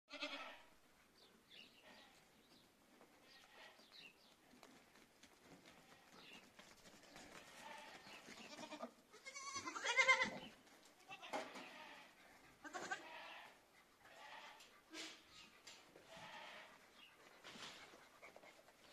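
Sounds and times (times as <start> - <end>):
goats bleating: 0.1 - 0.6, 7.4 - 14.7, 16.0 - 16.8.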